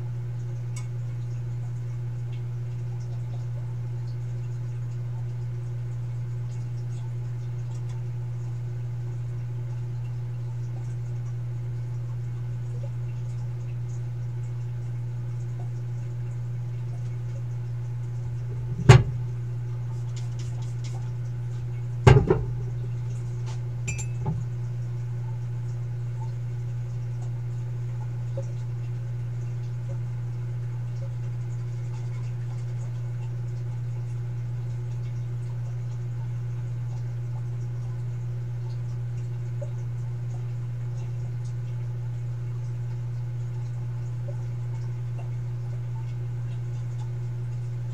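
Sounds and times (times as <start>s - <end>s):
sharp knocks: 22.1s - 22.5s.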